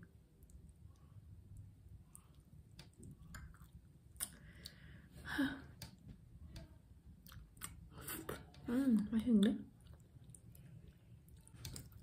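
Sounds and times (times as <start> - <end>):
chewing food: 0.4 - 4.8, 7.2 - 12.0.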